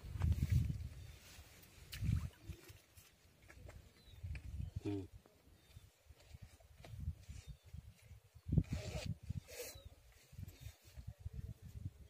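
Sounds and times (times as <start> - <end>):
wind buffeting microphone: 0.0 - 2.6, 6.3 - 12.0.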